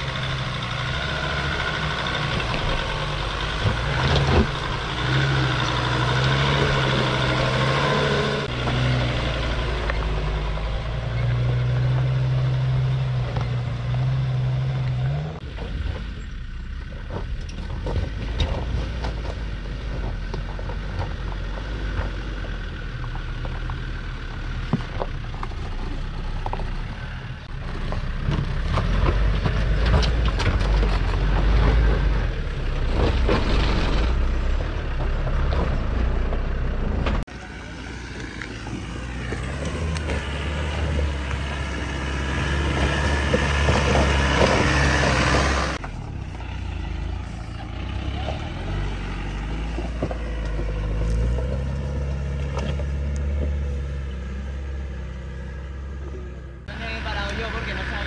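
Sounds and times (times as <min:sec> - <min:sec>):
diesel engine running at low revs: 0:00.0 - 0:58.0
tyres crunching over loose stones: 0:15.4 - 0:32.1, 0:37.2 - 0:54.0.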